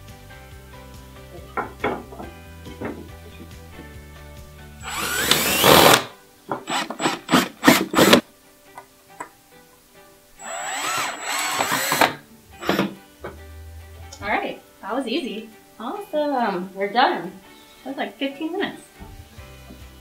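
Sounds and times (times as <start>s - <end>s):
cordless drill driving screws: 4.8s - 6.1s, 6.7s - 8.2s, 10.4s - 13.0s.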